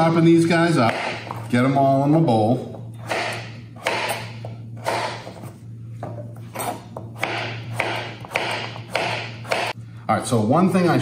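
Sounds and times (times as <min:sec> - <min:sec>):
knife slicing squash: 0:06.5 - 0:09.8.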